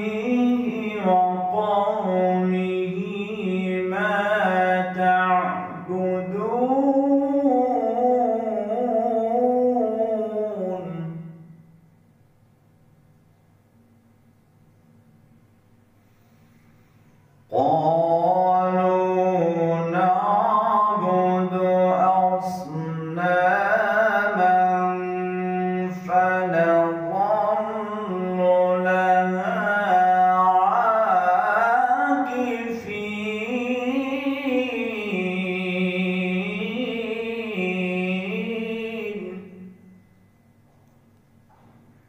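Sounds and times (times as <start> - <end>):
man reciting melodically: 0.0 - 11.4, 17.5 - 39.7.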